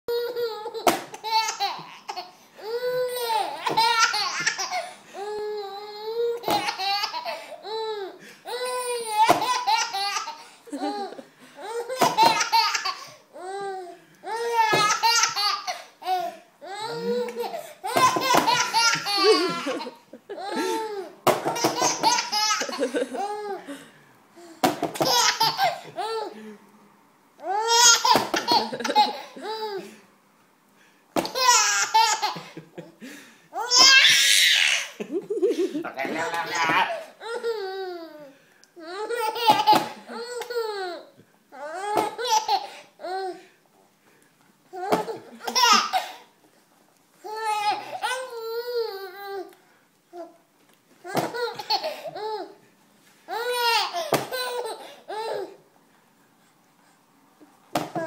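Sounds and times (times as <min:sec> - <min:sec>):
baby laughing: 0:00.1 - 0:23.6, 0:25.0 - 0:26.4, 0:27.4 - 0:29.9, 0:31.2 - 0:32.9, 0:33.6 - 0:38.3, 0:38.9 - 0:41.0, 0:41.7 - 0:42.8, 0:44.8 - 0:46.2, 0:51.0 - 0:52.6.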